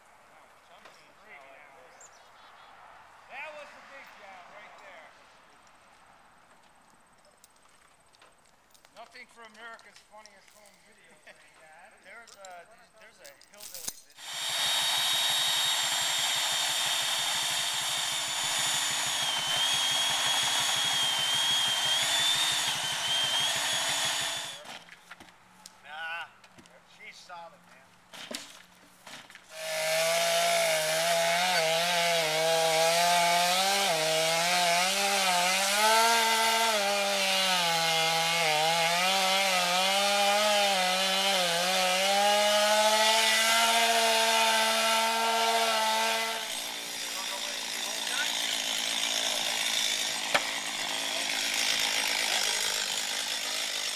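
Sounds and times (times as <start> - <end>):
chainsaw cutting wood: 14.1 - 25.3, 28.1 - 53.9.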